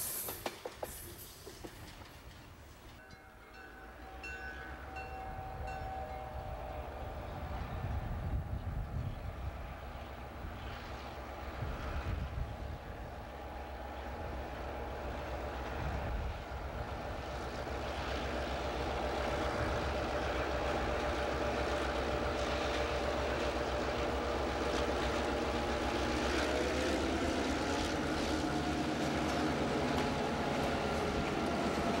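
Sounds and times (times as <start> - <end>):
clicking wheels on rail: 0.0 - 3.2, 10.7 - 32.0
diesel locomotive engine drone: 0.0 - 32.0.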